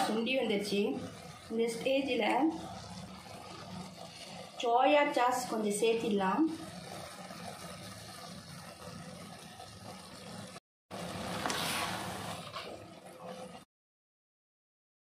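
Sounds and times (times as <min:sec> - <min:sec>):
broth simmering in a pot: 0:00.0 - 0:13.7
ladle scraping against a pot: 0:11.4 - 0:13.6.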